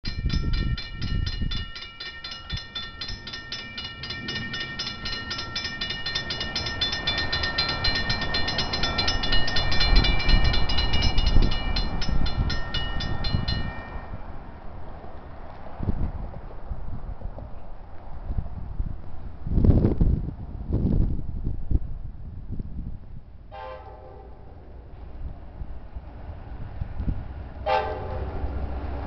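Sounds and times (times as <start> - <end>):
crossing warning bell dinging: 0.0 - 14.7
diesel locomotive rumble: 0.0 - 29.0.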